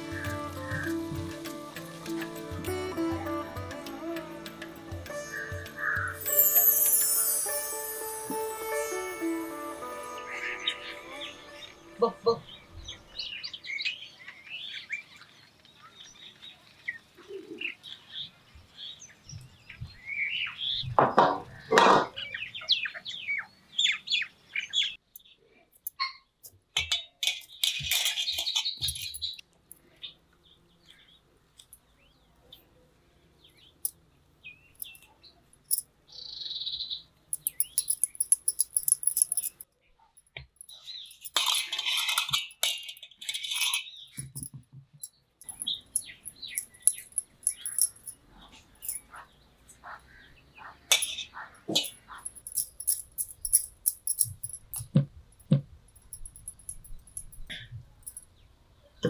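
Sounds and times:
small birds chirping: 27.5 - 41.6, 45.0 - 54.8.

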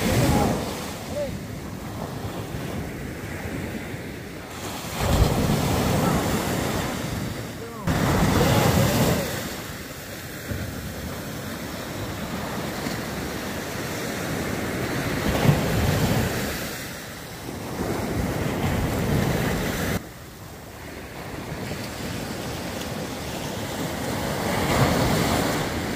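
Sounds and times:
wind on microphone: 0.0 - 16.8
waves breaking on beach: 0.0 - 25.9.

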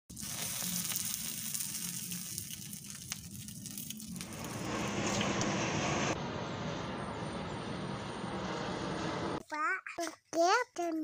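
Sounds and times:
fire crackling and sizzling: 0.1 - 6.2.

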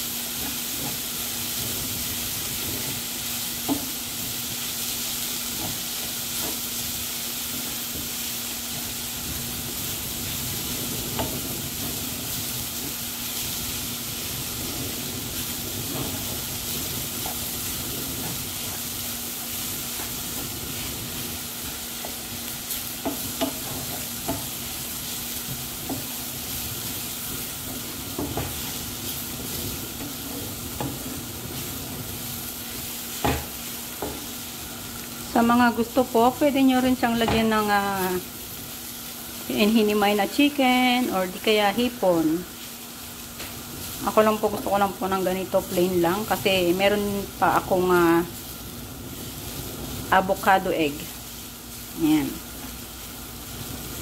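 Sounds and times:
rice sizzling in a frying pan: 0.0 - 54.0
wooden spatula scraping a pan: 0.3 - 35.1.

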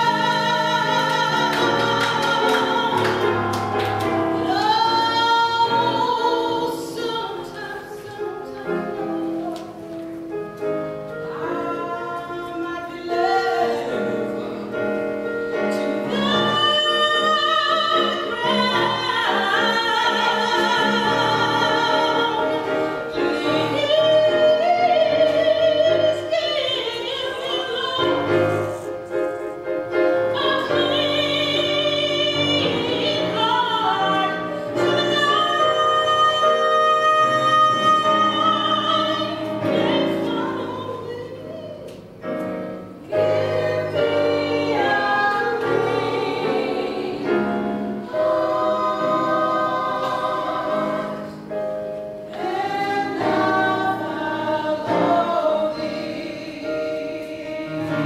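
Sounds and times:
sustained vocal harmony: 0.0 - 9.7, 11.2 - 41.5, 42.9 - 58.0
woman singing gospel solo: 0.0 - 9.8, 15.7 - 28.9, 30.3 - 42.0.

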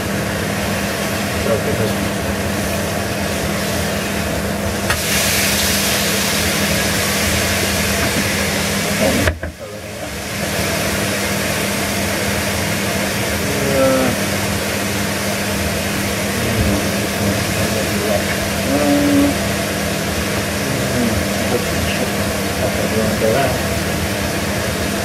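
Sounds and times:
constant low hum: 0.0 - 25.0
steak sizzling in a pan: 2.6 - 9.2.

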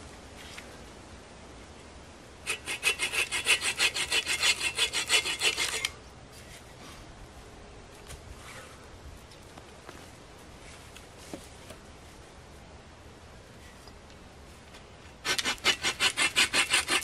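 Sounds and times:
hand saw cutting wood: 2.4 - 6.0, 15.2 - 17.0
faint rustling and handling: 6.3 - 12.3.

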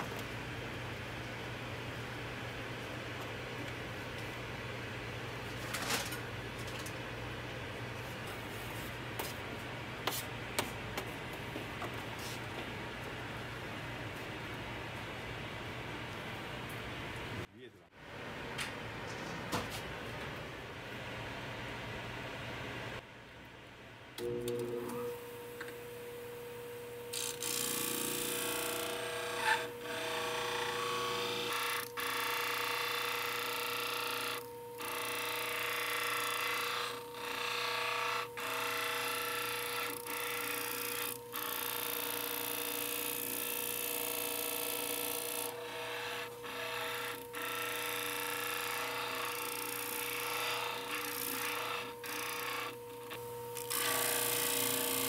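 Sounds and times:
trimmer wheel humming: 27.1 - 55.0.

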